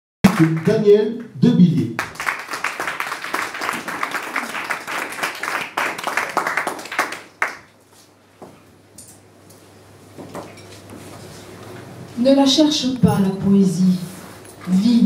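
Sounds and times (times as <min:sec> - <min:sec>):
small audience applauding: 0:00.2 - 0:01.1, 0:02.0 - 0:07.8.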